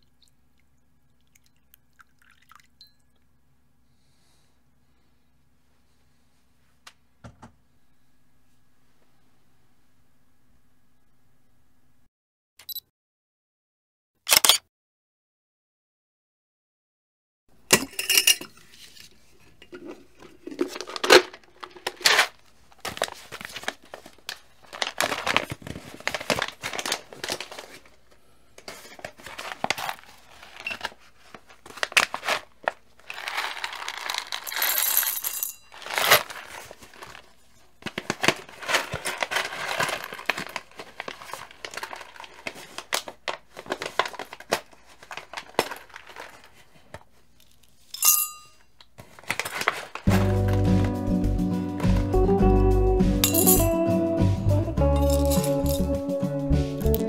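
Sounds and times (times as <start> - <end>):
coffee bag crinkling: 19.8 - 28.0, 28.6 - 47.0, 49.0 - 50.7, 55.0 - 55.9
coffee beans clinking into metal cup: 33.1 - 36.3, 48.0 - 48.6, 53.2 - 53.7, 55.0 - 55.9.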